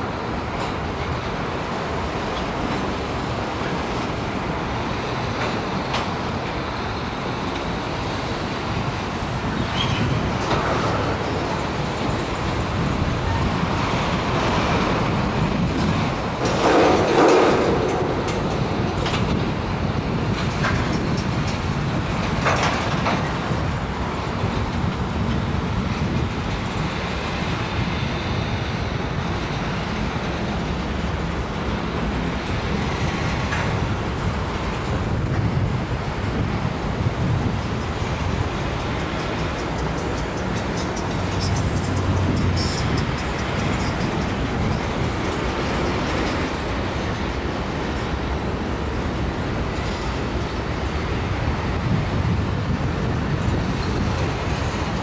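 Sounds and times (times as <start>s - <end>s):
train wheels clattering on rails: 0.0s - 55.0s.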